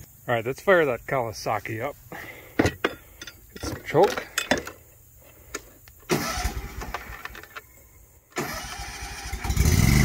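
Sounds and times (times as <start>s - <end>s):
electric starter cranking: 6.1s - 7.6s, 8.3s - 10.0s.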